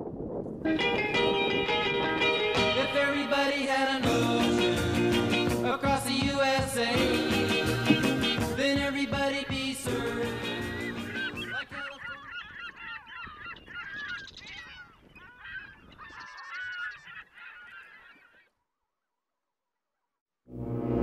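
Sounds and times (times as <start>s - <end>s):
flock of birds calling: 10.2s - 18.5s.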